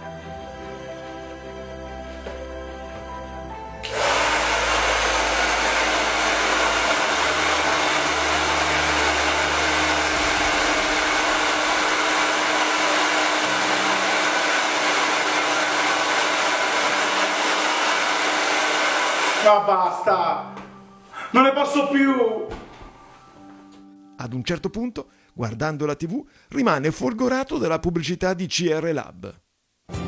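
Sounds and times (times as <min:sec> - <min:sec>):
hair dryer blowing: 0:03.8 - 0:19.8.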